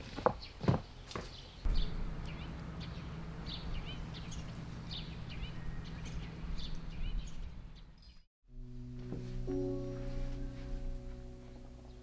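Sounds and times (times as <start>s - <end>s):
small birds chirping: 0.3s - 8.3s
steady low hum: 1.7s - 12.0s.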